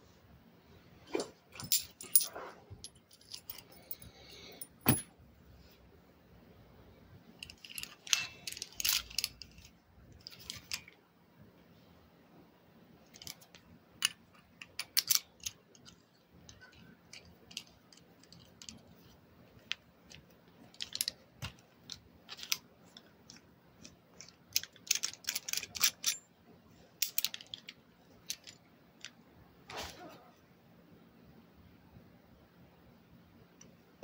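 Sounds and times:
handcuffs and key clicking: 1.2 - 5.1, 7.4 - 11.0, 13.1 - 18.9, 19.6 - 26.3, 27.0 - 29.1.

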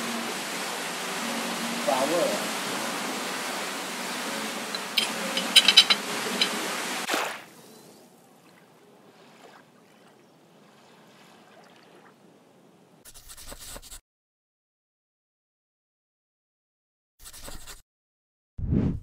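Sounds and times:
outdoor ambience hiss: 0.0 - 9.6
small waves lapping on sand: 0.0 - 12.8
metal spoon clinking ceramic bowl: 4.7 - 6.6.

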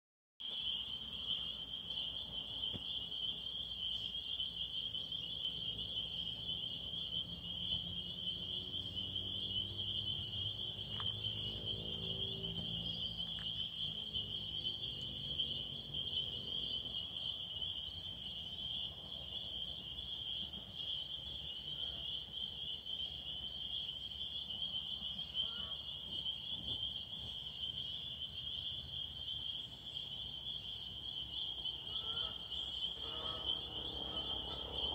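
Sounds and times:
vehicle passing: 5.7 - 20.1, 32.9 - 34.9.

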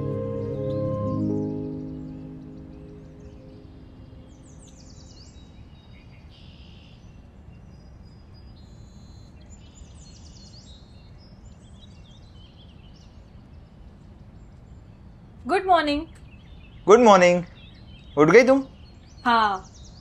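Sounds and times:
background music: 0.0 - 4.6
birds chirping: 0.0 - 7.0, 11.6 - 20.0.

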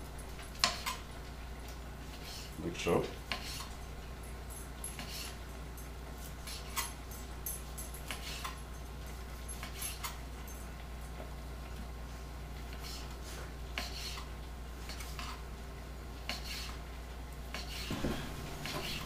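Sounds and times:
low steady hum: 0.0 - 19.0
knife cutting on cutting board: 13.8 - 14.3, 17.6 - 19.0.

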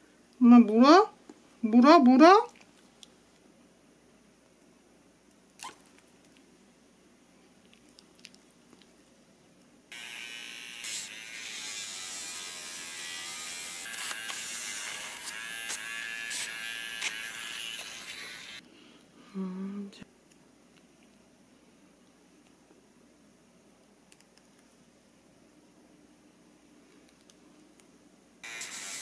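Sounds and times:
nail grinder whine: 9.9 - 18.6, 28.4 - 29.0.

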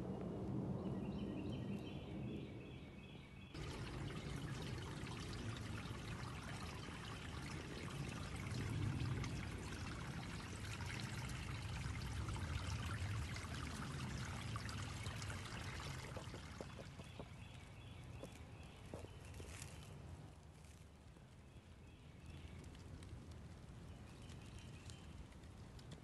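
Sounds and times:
water flowing: 3.6 - 19.8.

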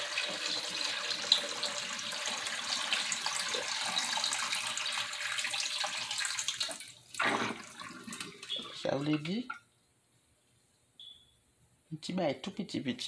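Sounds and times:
water running into sink drain: 0.0 - 9.6.

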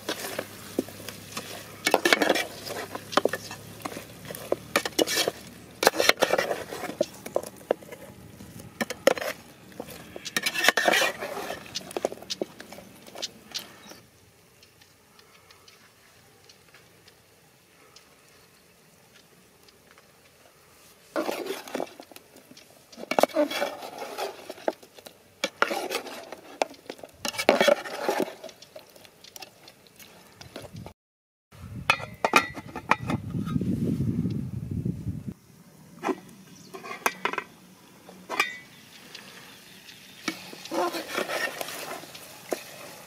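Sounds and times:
metal ladle scraping a pot: 0.0 - 13.9, 21.1 - 22.2, 22.9 - 28.6, 36.0 - 37.5, 38.3 - 38.7, 40.2 - 43.0.

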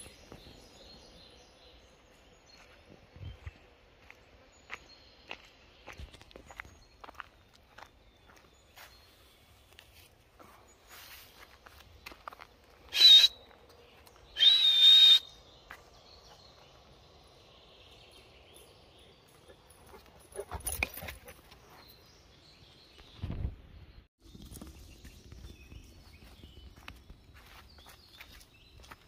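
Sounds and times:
high whistles: 12.9 - 13.4, 14.4 - 15.3.

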